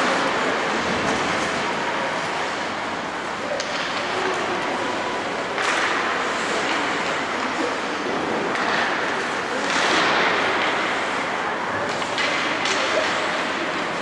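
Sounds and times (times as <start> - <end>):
hockey sticks and puck clacking: 3.4 - 4.7, 5.6 - 7.7, 8.4 - 14.0.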